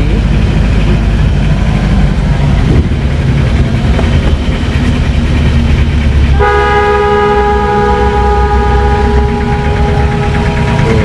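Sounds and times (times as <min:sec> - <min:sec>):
engine low rumble: 0:00.0 - 0:11.0
multi-tone horn: 0:06.4 - 0:10.5.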